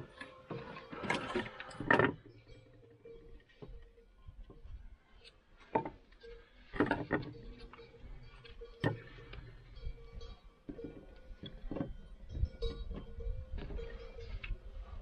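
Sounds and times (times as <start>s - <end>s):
firewood knocking and clattering: 5.6s - 6.0s, 6.7s - 7.7s.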